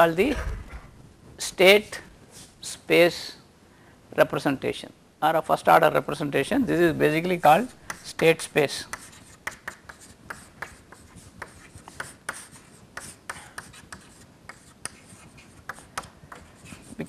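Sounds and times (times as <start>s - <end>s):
chalk writing on chalkboard: 7.4s - 17.0s.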